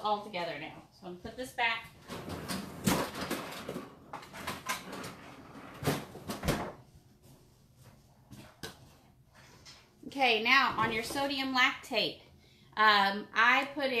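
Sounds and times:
door opening and closing: 2.0 - 6.8.

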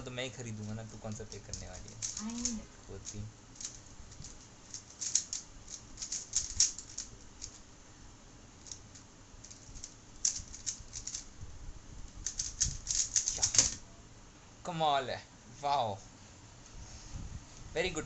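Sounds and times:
speed cube plastic clicking: 1.1 - 7.6, 8.6 - 11.3, 12.2 - 13.7.

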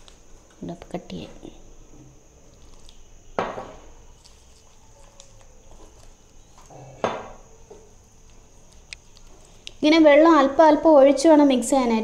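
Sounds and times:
faint stirring in bowl: 2.4 - 9.8.

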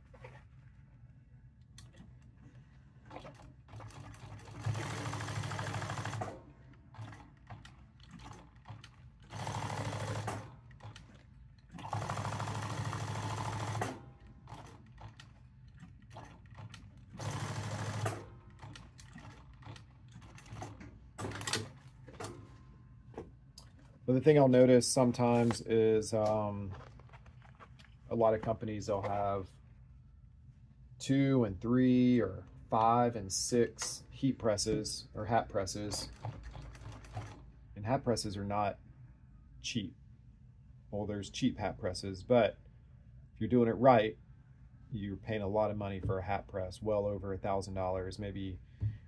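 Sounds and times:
sewing machine stitching: 3.1 - 22.3, 35.9 - 37.4.

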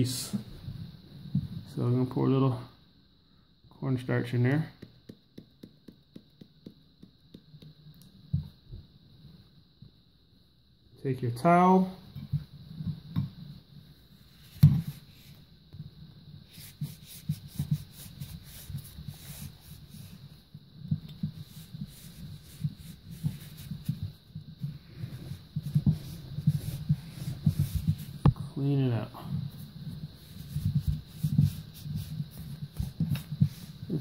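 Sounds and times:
dull handling thuds: 14.5 - 15.0
cloth rubbing on metal: 16.4 - 34.0.

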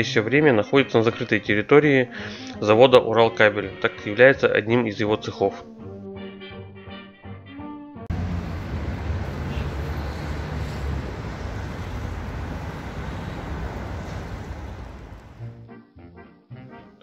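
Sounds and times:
city street traffic: 8.1 - 15.5
low engine hum: 8.1 - 15.5.

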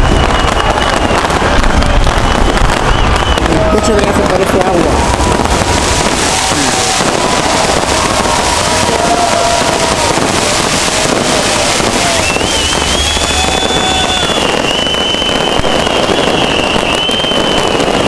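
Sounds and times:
fireworks crackling: 0.0 - 18.0
high firework whistle: 0.0 - 18.0.

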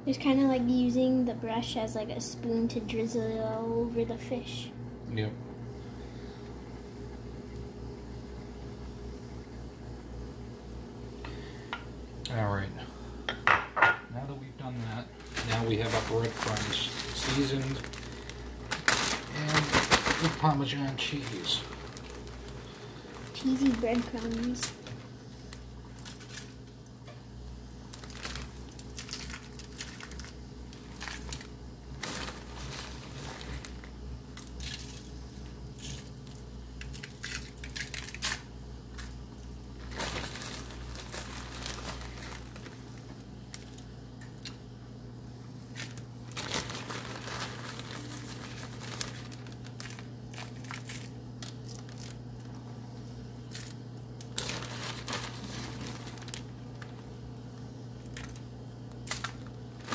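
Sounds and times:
plastic bag crinkling: 14.6 - 26.9, 27.8 - 44.6, 45.6 - 59.9.

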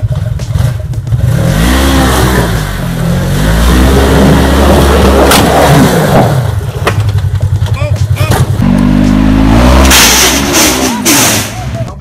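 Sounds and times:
off-road vehicle engine revving: 0.0 - 12.0.

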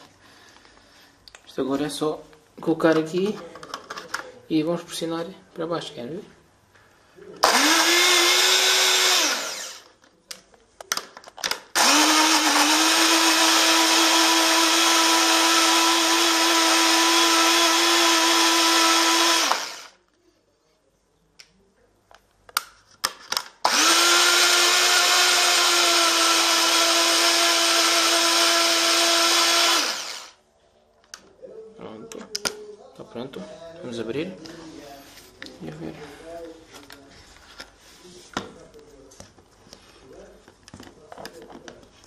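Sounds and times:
blender motor whining: 7.4 - 9.9, 11.8 - 20.0, 23.6 - 30.4.

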